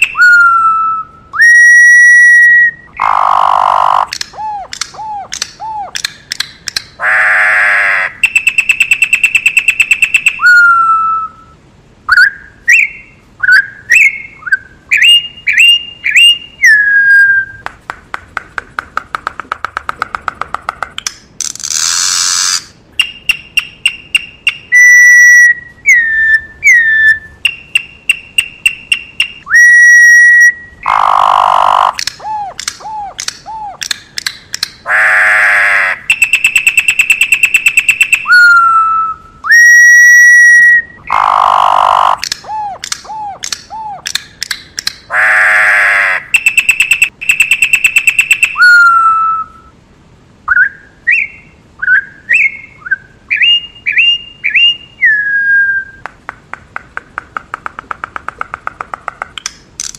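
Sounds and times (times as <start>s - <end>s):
bird whistling song: 0.0s - 6.6s, 8.0s - 17.6s, 21.7s - 34.0s, 36.0s - 44.2s, 46.2s - 49.7s, 50.5s - 56.0s.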